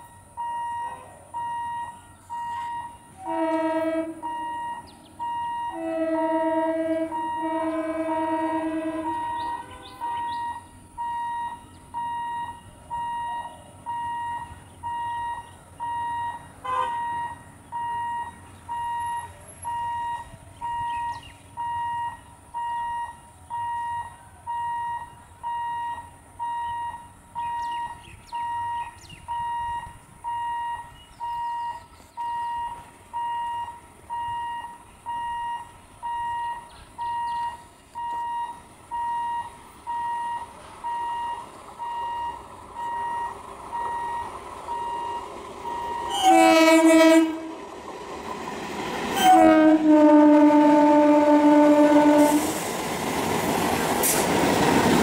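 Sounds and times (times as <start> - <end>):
short electronic beep: 0.4 - 3.0.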